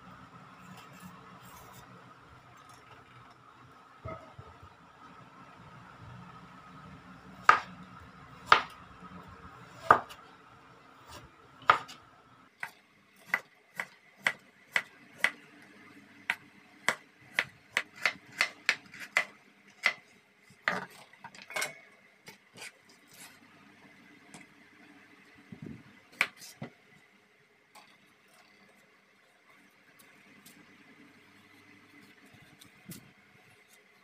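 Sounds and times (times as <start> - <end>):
knife chopping on wooden board: 7.4 - 7.7, 8.4 - 8.8, 9.7 - 10.2, 11.1 - 12.0, 16.3 - 20.0.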